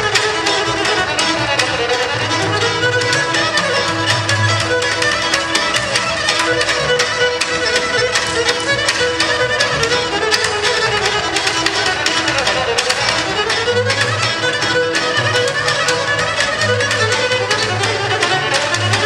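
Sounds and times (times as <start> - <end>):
bowed string melody: 0.0 - 19.0
fast plucked lute strokes: 0.0 - 19.0.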